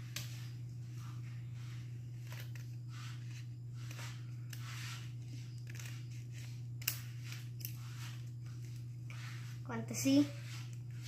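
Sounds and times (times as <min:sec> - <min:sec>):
steady low hum: 0:00.0 - 0:11.0
scissors snipping paper: 0:02.2 - 0:09.3
scissor blades clicking: 0:06.8 - 0:07.8.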